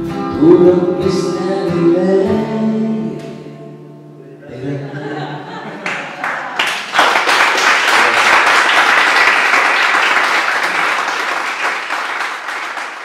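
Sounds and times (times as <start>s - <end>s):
audience applauding: 5.8s - 13.0s.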